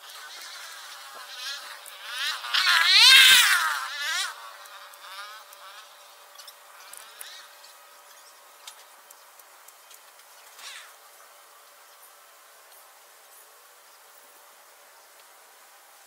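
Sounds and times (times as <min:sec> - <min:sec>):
flying insect buzzing: 0:00.0 - 0:09.0, 0:10.5 - 0:11.0
faint ticks: 0:04.5 - 0:10.9.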